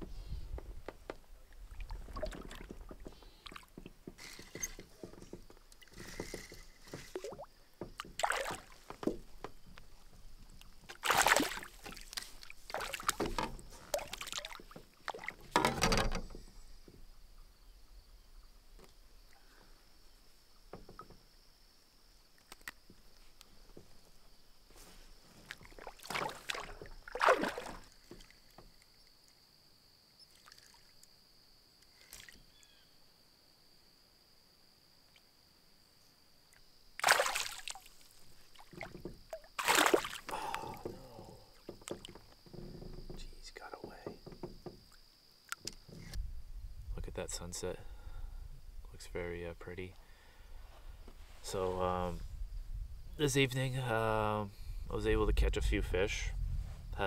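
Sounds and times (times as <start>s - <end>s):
water splashes and drips: 1.5s - 16.4s, 25.4s - 28.9s, 30.3s - 31.1s, 37.0s - 45.8s
paddle strokes in water: 1.6s - 15.7s, 24.8s - 28.6s.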